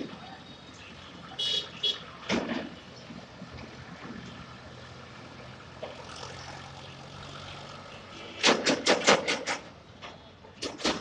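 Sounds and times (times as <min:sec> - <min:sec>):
passing vehicles: 0:00.0 - 0:11.0
loud sharp knocks: 0:08.4 - 0:09.6.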